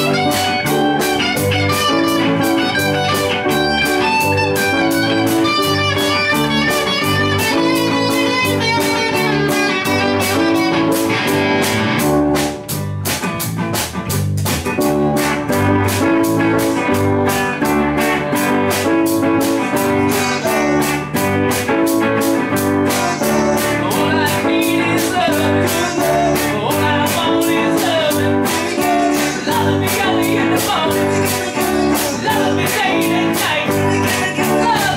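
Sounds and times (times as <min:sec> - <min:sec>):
bass guitar: 0:00.0 - 0:34.9
drum kit beat: 0:00.0 - 0:34.9
electric guitar: 0:00.0 - 0:34.9.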